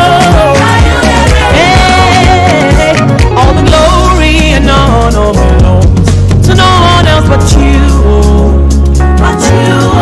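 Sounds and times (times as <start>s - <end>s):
upbeat gospel song: 0.0s - 10.0s.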